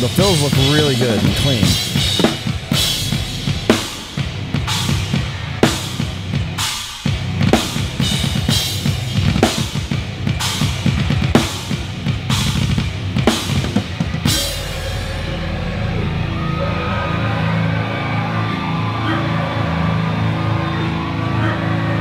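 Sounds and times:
fast heavy metal drumming: 0:00.0 - 0:18.9
heavy band music: 0:00.0 - 0:22.0
crash cymbal: 0:14.3 - 0:16.4.

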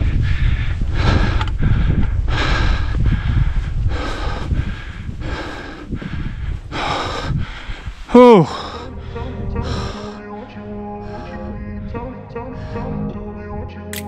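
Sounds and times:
person breathing hard: 0:00.0 - 0:10.2
low microphone rumble: 0:00.0 - 0:13.6.

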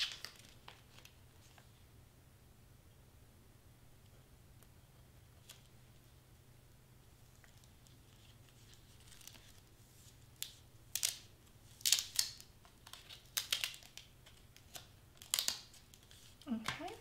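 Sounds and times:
plastic sheet crinkling: 0:00.0 - 0:01.7, 0:07.3 - 0:17.0.

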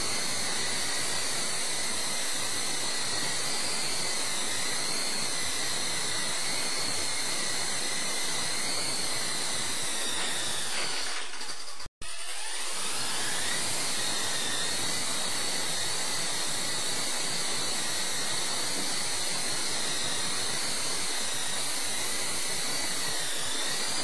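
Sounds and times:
rc helicopter rotor whine: 0:00.0 - 0:24.0.

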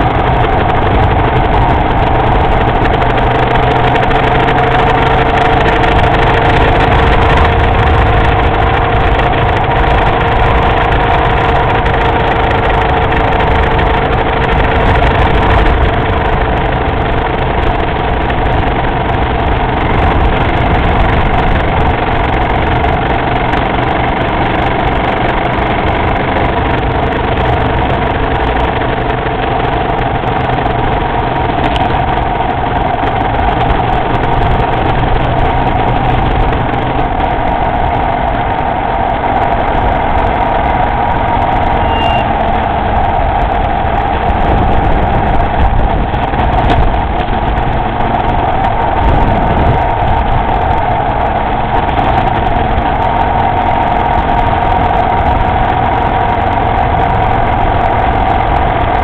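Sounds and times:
motorcycle engine running: 0:00.0 - 0:59.0
road and wind noise: 0:00.0 - 0:59.0.

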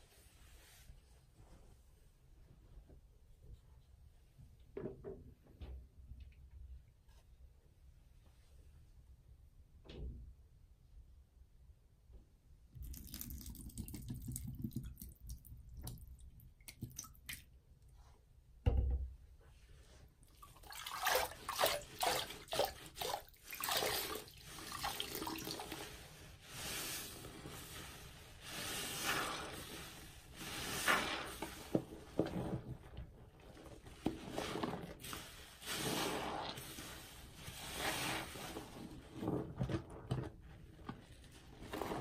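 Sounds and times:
liquid pouring from bottle: 0:12.8 - 0:15.4
sponge squelching in soapy water: 0:19.5 - 0:42.0.

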